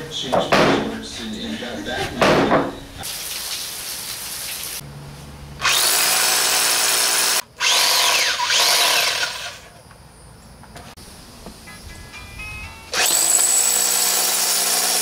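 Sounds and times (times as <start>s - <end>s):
hammer drill boring into concrete: 5.6s - 9.7s, 13.0s - 15.0s.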